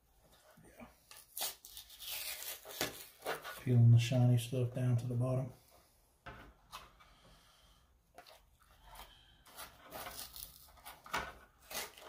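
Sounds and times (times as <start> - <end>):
rustling and scraping: 8.2 - 12.0.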